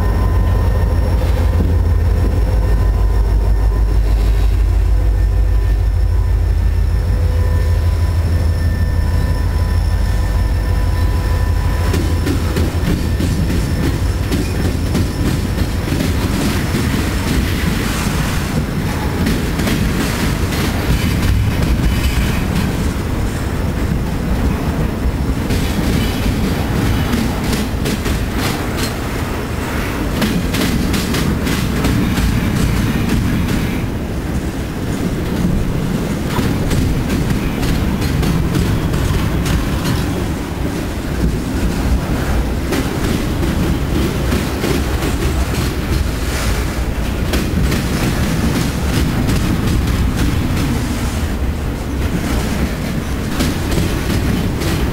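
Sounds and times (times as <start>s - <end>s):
diesel locomotive rumble: 0.0s - 54.9s
train wheels clicking over rail joints: 11.6s - 54.9s.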